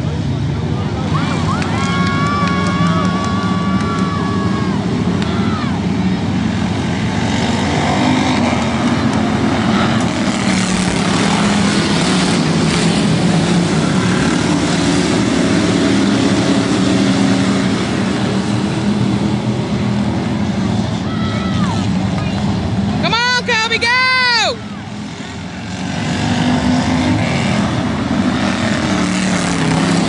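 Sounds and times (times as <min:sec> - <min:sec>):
race car engines at full throttle: 0:00.0 - 0:30.0.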